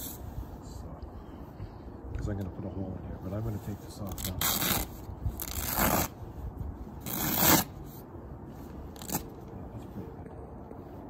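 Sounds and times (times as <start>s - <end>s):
velcro ripping: 4.1s - 6.2s, 7.0s - 7.8s, 9.0s - 9.3s.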